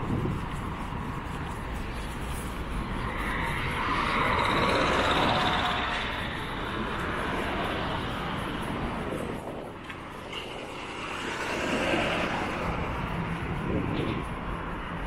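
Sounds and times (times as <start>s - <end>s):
steady traffic rumble: 0.0s - 15.0s
vehicle passing close: 2.6s - 14.6s.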